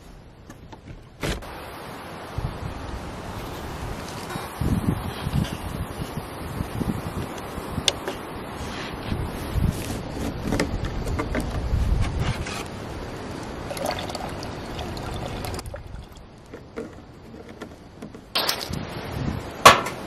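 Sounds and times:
wind rumbling on microphone: 0.0s - 20.0s
water trickling into bowl: 13.6s - 16.4s.

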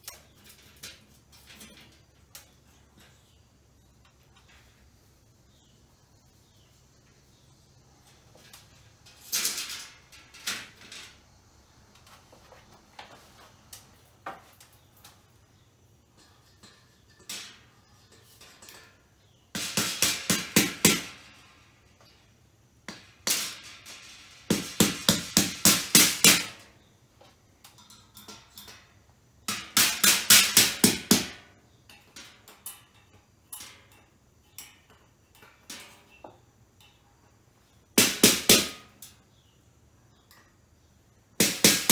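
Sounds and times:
objects scraping and knocking: 7.3s - 19.8s.

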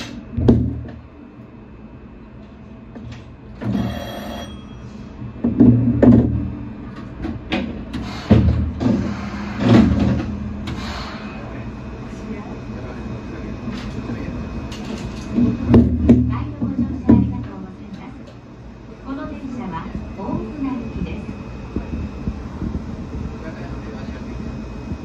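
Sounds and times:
loud thuds with low rumbling: 0.3s - 1.1s, 15.4s - 17.5s.

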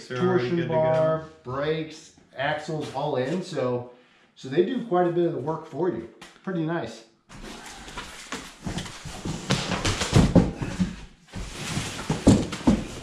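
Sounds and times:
cardboard and plastic rustling: 7.3s - 13.0s.

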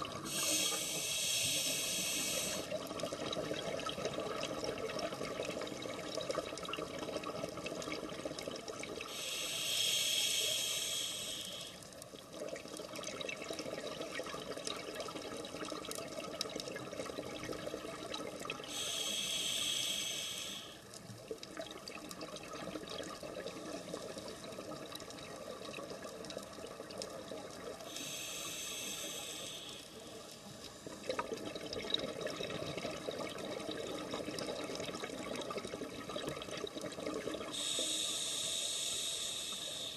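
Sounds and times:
diver breathing through regulator: 0.2s - 2.7s, 9.1s - 11.8s, 18.7s - 20.8s, 27.9s - 30.1s, 37.5s - 39.9s.

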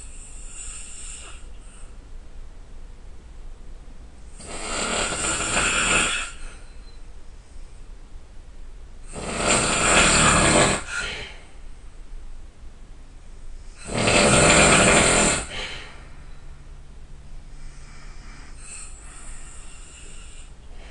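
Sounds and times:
person snoring loudly: 4.4s - 6.5s, 9.1s - 11.4s, 13.8s - 16.0s, 17.6s - 20.9s.

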